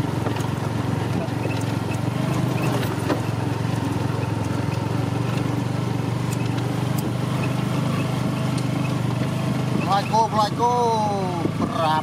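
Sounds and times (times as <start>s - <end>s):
small motorcycle engine running: 0.0s - 12.0s.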